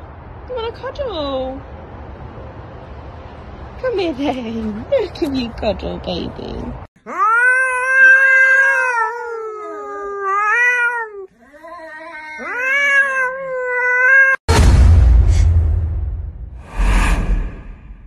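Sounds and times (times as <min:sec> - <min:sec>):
cat yowling: 0:07.0 - 0:14.4
loud whoosh: 0:14.5 - 0:18.0.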